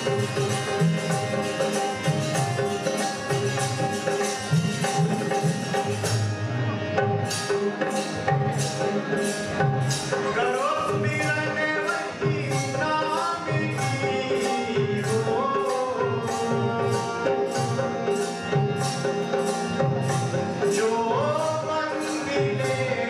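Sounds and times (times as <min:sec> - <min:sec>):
cymbals and tambourines jingling: 0:00.0 - 0:06.2
hand drum playing: 0:00.0 - 0:23.0
harmonium and tambura drone: 0:00.0 - 0:23.0.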